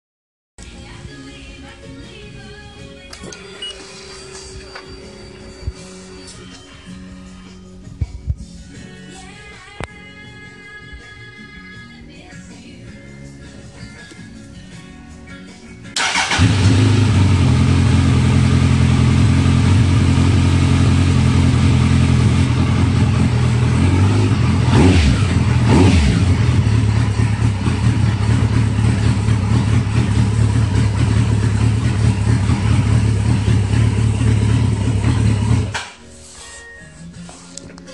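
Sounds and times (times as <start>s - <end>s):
motorcycle engine idling: 16.0s - 35.8s.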